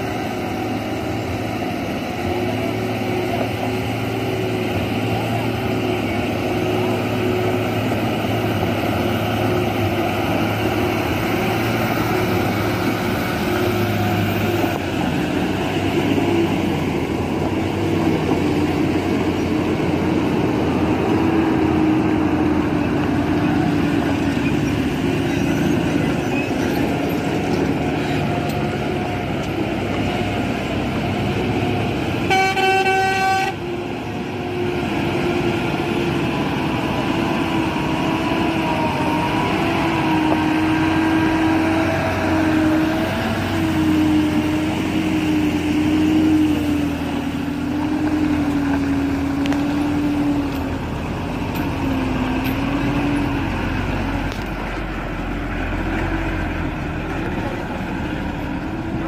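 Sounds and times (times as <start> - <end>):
lorry diesel engines droning: 0.0 - 59.0
horn: 32.2 - 33.6.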